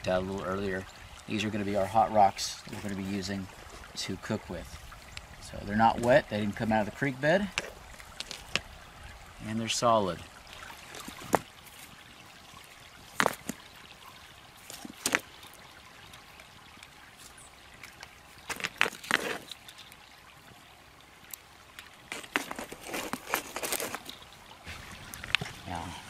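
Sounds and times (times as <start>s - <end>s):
trickle of creek water: 0.0s - 26.0s
stones clacking together: 7.5s - 8.7s, 13.1s - 13.6s, 14.6s - 15.6s, 17.8s - 20.0s, 21.8s - 24.4s.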